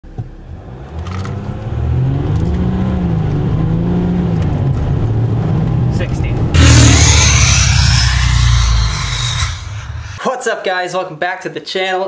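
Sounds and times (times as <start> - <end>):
diesel truck engine accelerating: 0.5 - 6.6.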